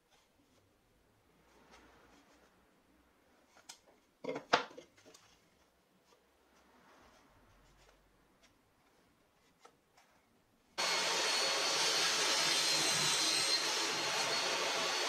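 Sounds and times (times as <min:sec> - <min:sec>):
power tool motor whining: 0:10.8 - 0:15.0.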